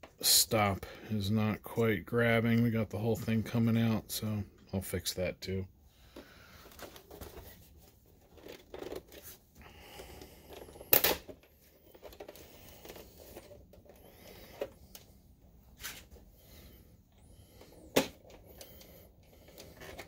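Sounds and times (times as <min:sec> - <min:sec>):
plastic case scraping and rustling: 0:06.1 - 0:15.1, 0:17.2 - 0:20.0.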